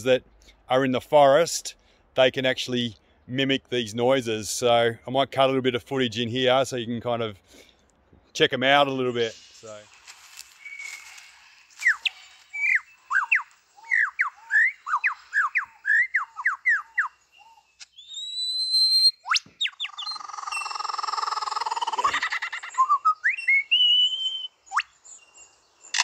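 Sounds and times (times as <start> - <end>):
lyrebird singing: 10.5 - 26.0.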